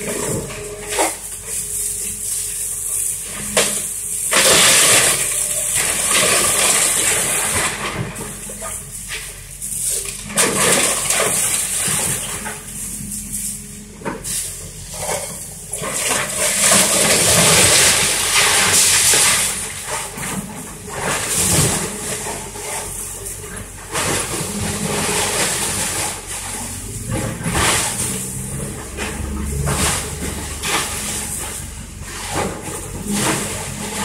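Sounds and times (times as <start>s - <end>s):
excavator diesel engine running: 0.0s - 34.0s
falling debris: 3.2s - 12.7s, 14.2s - 34.0s
wood cracking and splintering: 3.4s - 8.4s, 9.9s - 12.6s, 15.2s - 22.7s.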